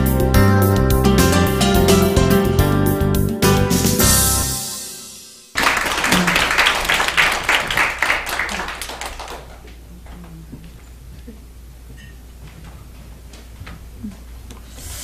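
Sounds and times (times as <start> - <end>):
instrumental music: 0.0 - 5.6
audience applause: 5.5 - 9.8.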